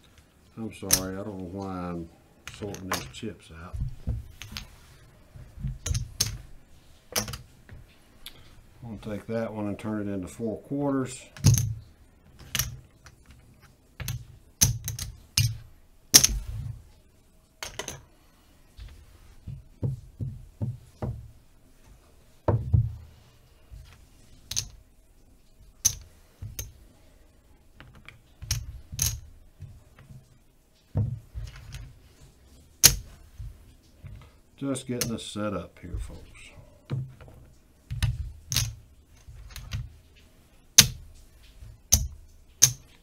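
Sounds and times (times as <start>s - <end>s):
casino chips clicking: 41.9s - 43.0s.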